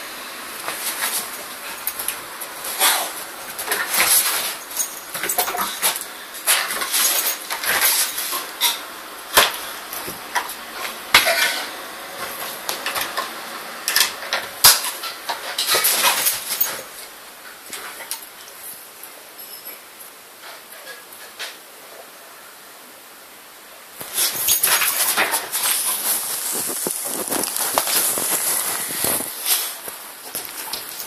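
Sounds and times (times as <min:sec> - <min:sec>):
dog scuffling and rustling: 0:00.6 - 0:13.3, 0:13.9 - 0:17.1, 0:24.0 - 0:31.0.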